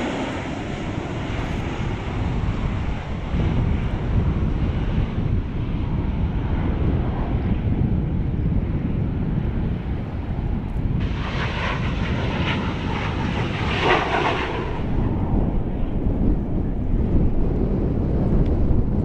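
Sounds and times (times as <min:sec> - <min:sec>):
jet aircraft flying past: 0:00.0 - 0:19.0
wind rumble on microphone: 0:00.0 - 0:19.0.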